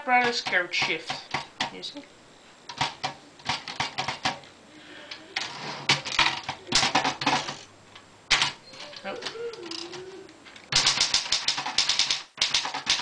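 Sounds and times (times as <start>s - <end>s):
typewriter mechanical rattling: 0.0s - 1.8s, 2.7s - 4.4s, 5.4s - 7.7s, 10.7s - 13.0s
typewriter type-bar clacks: 2.7s - 4.4s, 5.9s - 7.6s, 10.7s - 13.0s.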